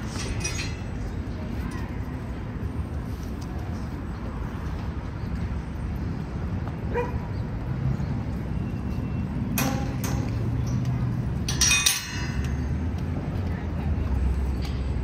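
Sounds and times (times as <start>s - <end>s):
city street traffic rumble: 0.0s - 15.0s
dog barking: 6.9s - 7.2s.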